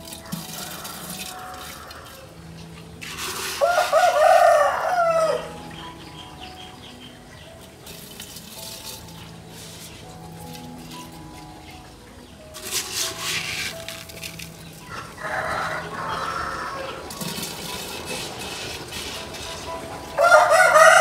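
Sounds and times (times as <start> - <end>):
quiet background music: 0.0 - 21.0
rooster crowing: 0.5 - 2.3, 3.6 - 5.6, 14.9 - 17.1, 20.2 - 21.0.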